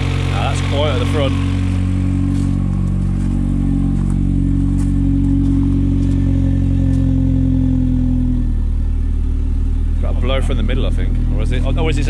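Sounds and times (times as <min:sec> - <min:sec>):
car engine idling with raspy exhaust: 0:00.0 - 0:12.0.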